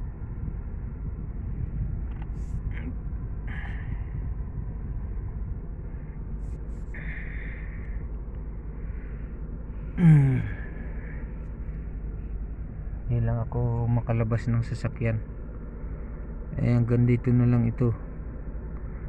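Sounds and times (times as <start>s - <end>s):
man sighing: 10.0s - 10.9s.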